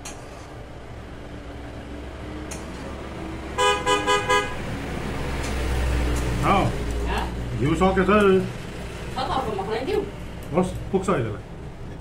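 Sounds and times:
low engine rumble: 0:00.0 - 0:12.0
vehicle horn tooting: 0:03.6 - 0:04.6.

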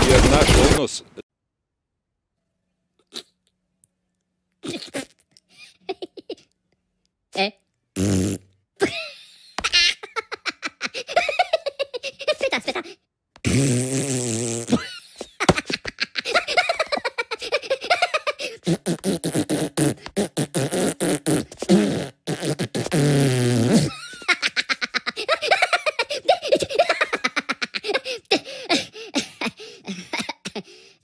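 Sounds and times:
giggles: 0:05.4 - 0:06.6, 0:08.8 - 0:13.0, 0:14.7 - 0:18.6, 0:23.9 - 0:30.7.

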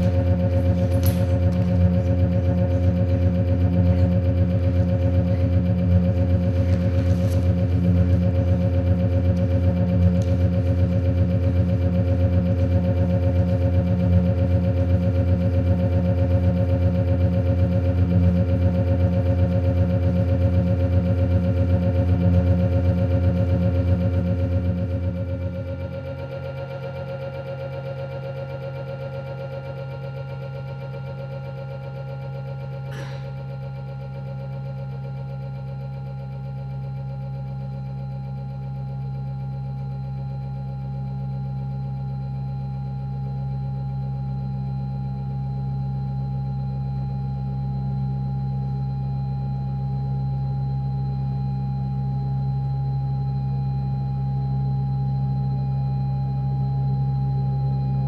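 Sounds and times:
electronic drone: 0:00.0 - 0:44.8.

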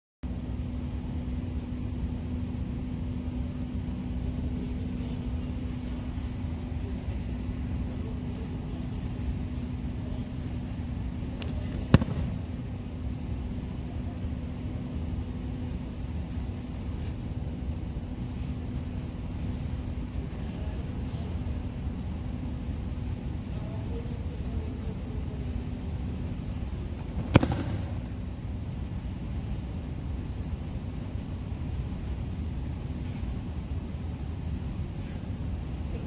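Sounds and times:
low hum of large hall: 0:00.2 - 0:36.0.

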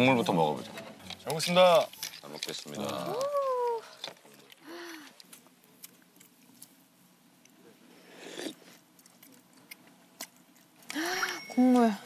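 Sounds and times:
slurping broth: 0:08.0 - 0:08.8.

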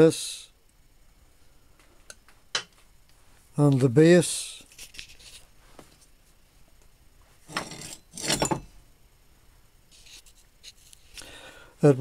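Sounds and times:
clinking rustling handling: 0:07.5 - 0:08.7.

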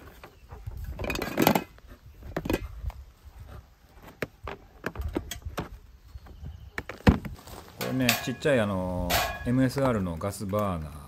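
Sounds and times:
metal cookware clinking: 0:07.8 - 0:09.8.

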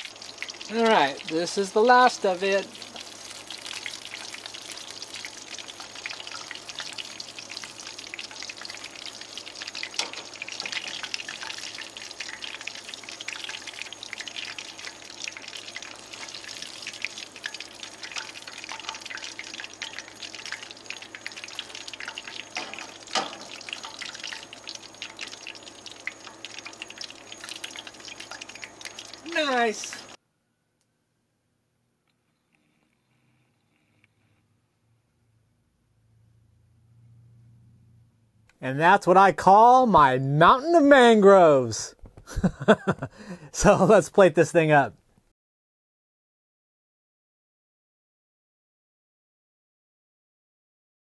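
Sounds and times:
hot oil sizzling: 0:00.0 - 0:30.2, 0:42.2 - 0:44.8.

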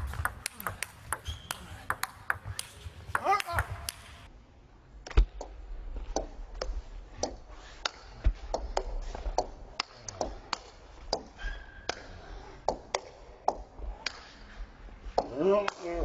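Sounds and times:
table tennis ball clicks: 0:00.0 - 0:04.1.

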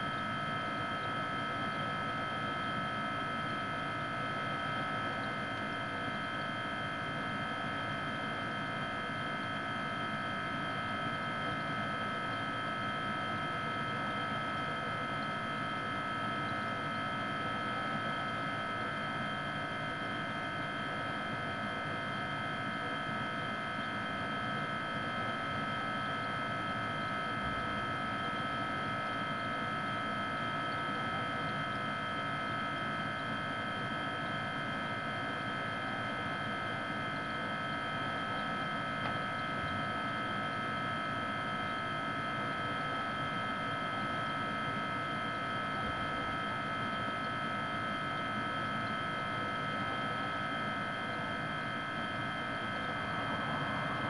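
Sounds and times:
refrigerator humming: 0:50.0 - 0:54.0.

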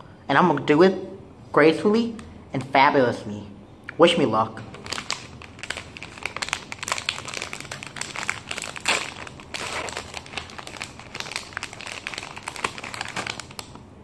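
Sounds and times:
plastic wrapper crinkling and tearing: 0:04.7 - 0:13.8.

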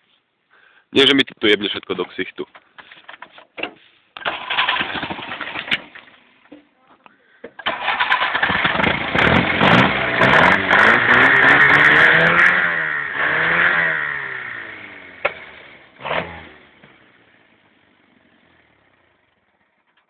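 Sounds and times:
small petrol engine revving: 0:04.2 - 0:06.4, 0:07.6 - 0:19.8.

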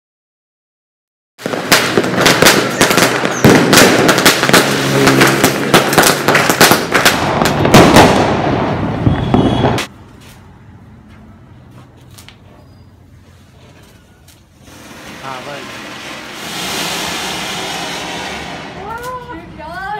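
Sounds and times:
firecrackers banging: 0:01.4 - 0:10.4, 0:13.2 - 0:19.9.

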